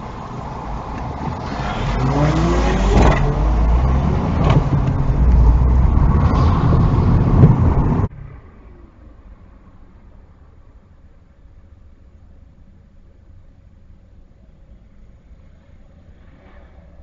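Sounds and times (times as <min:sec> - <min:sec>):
car engine revving: 0:00.0 - 0:08.1
low road rumble: 0:00.0 - 0:17.0.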